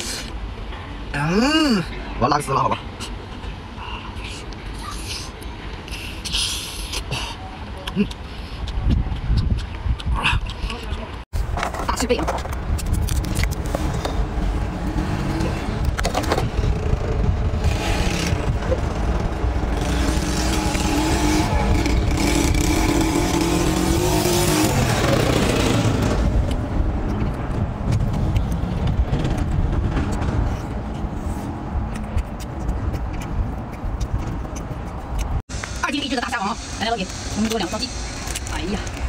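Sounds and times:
wind rumble on microphone: 8.5s - 35.4s
engine running: 12.8s - 39.0s.

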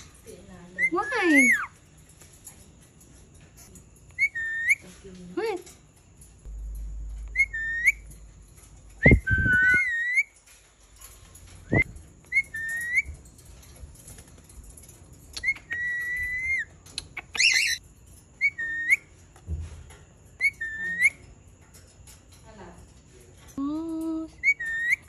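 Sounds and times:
parakeet whistled calls: 4.2s - 4.8s, 7.3s - 8.0s, 9.0s - 10.3s, 11.7s - 13.1s, 15.4s - 17.8s, 18.4s - 19.1s, 24.4s - 25.0s.

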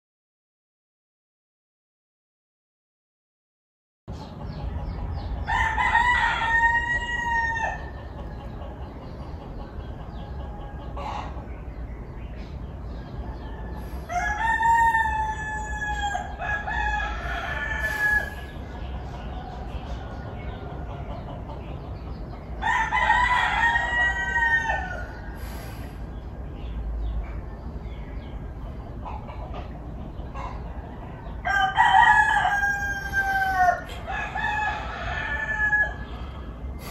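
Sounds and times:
roosters crowing: 4.2s - 11.8s, 12.8s - 26.1s, 30.2s - 36.9s.

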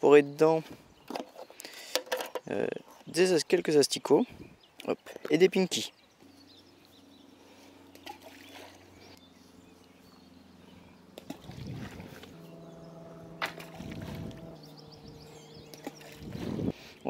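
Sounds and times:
faint low hum: 6.0s - 17.0s
bait splashing into pond: 7.9s - 8.8s, 11.2s - 12.4s, 13.4s - 14.4s, 15.7s - 16.4s.

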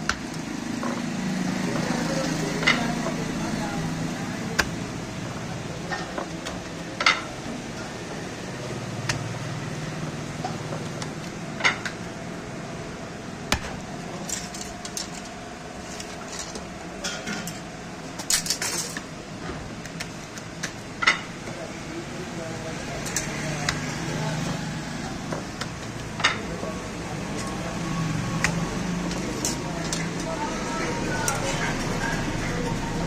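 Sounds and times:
steady background hum: 0.0s - 33.0s
metal tools and dishes clinking: 18.3s - 19.0s.

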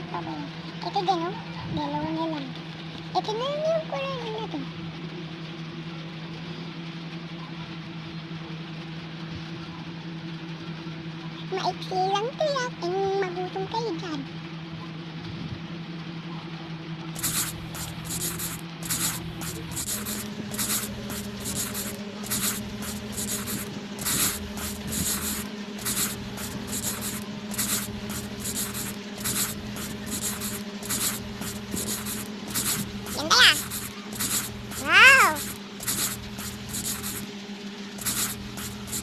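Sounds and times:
crayon scribbling on paper: 17.2s - 37.3s, 38.0s - 39.0s
low steady hum: 17.2s - 39.0s.

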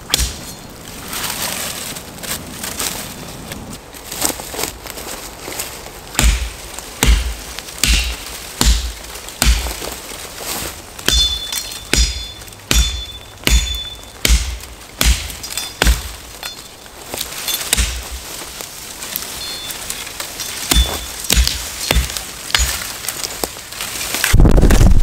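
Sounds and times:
machete chopping brush: 0.0s - 0.6s, 6.2s - 16.3s, 17.2s - 18.4s, 20.4s - 23.3s.

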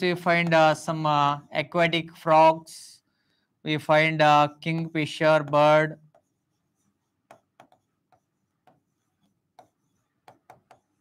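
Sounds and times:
stylus tapping on screen: 0.4s - 0.8s, 4.6s - 11.0s.

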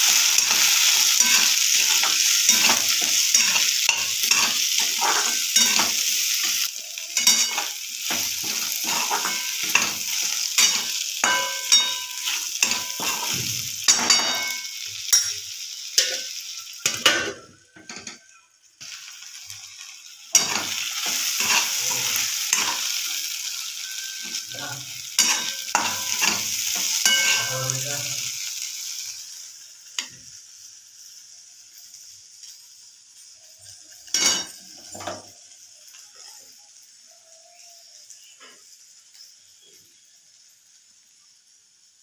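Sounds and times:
metal spatula scraping a pan: 0.0s - 18.2s, 20.3s - 28.1s
stir-fry sizzling in a metal pan: 0.0s - 42.0s.

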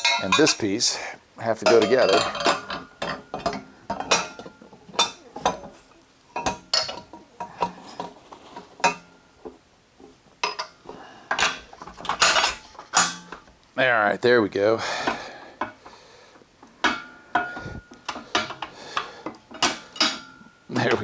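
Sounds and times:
metal frame pieces clanking: 0.0s - 5.8s, 6.4s - 9.1s, 10.4s - 13.5s, 16.8s - 21.0s.

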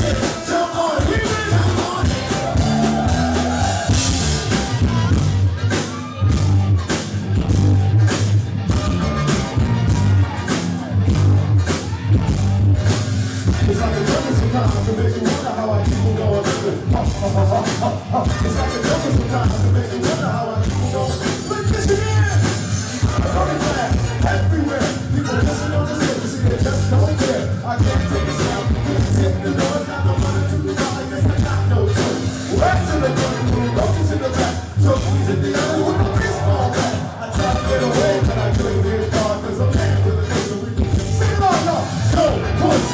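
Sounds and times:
drums steady beat: 0.0s - 42.9s
electric bass line: 0.0s - 42.9s
person singing: 13.5s - 22.2s, 23.0s - 42.9s.

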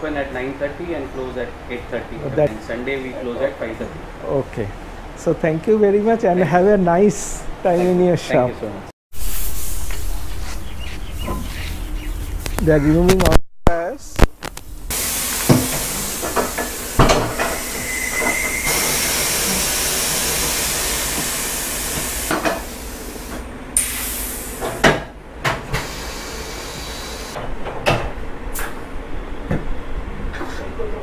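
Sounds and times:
air hissing: 9.2s - 11.8s, 14.9s - 24.9s, 25.7s - 27.4s.

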